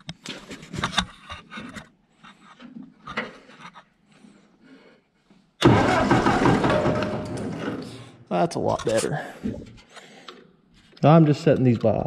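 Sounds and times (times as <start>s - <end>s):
tractor starter cranking engine: 5.6s - 8.1s.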